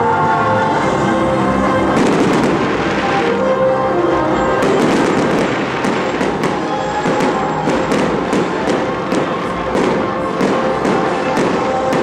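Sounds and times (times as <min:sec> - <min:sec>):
music playing: 0:00.0 - 0:12.0
fireworks bangs and crackles: 0:01.9 - 0:03.3, 0:04.5 - 0:12.0.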